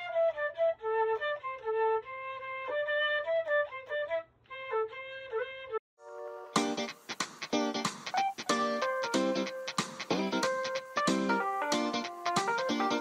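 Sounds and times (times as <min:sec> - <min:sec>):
solo instrumental melody: 0:06.0 - 0:13.0.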